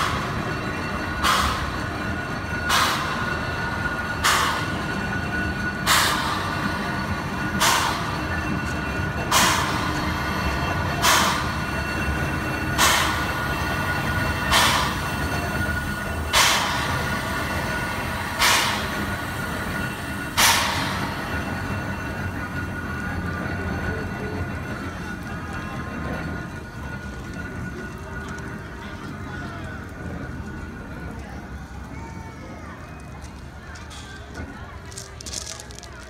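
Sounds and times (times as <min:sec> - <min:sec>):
steam locomotive hissing puffs: 0:00.0 - 0:24.6.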